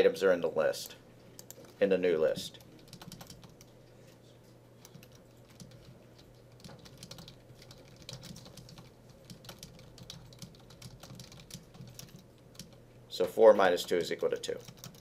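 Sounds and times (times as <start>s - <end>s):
computer keyboard typing: 1.4s - 3.7s, 4.8s - 12.8s, 13.8s - 15.0s.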